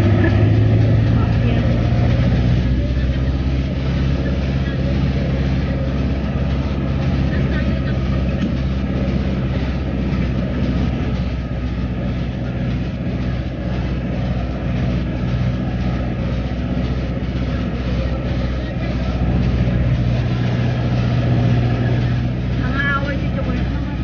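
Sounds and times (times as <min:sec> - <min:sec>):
low engine hum: 0:00.0 - 0:24.0
road noise: 0:00.0 - 0:24.0.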